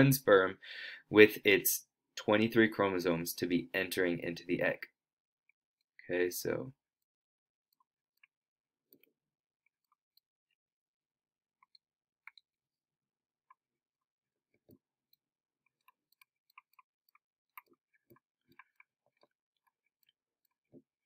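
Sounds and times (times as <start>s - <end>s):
stylus tapping drawing tablet: 14.5s - 21.0s.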